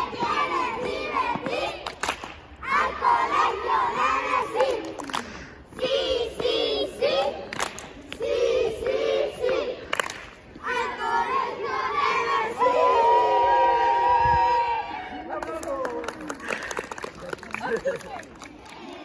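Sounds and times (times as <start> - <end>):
children chanting: 0.0 - 2.0, 2.6 - 7.6, 8.2 - 10.0, 10.6 - 15.2.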